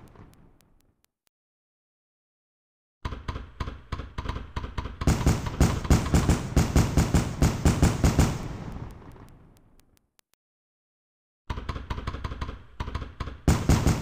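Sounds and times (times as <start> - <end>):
fireworks bangs: 0.0 - 0.8, 5.1 - 9.9, 13.5 - 14.0
fireworks popping and crackling: 0.0 - 1.0, 5.1 - 10.2, 13.5 - 14.0.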